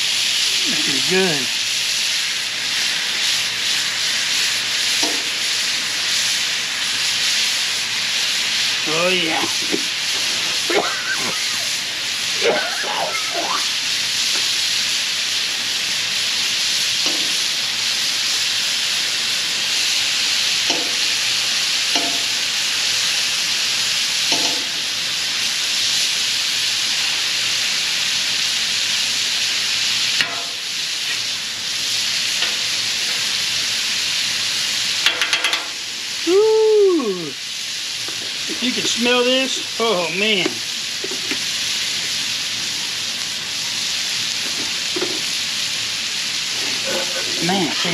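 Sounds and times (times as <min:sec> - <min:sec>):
fish sizzling on griddle: 0:00.0 - 0:47.9.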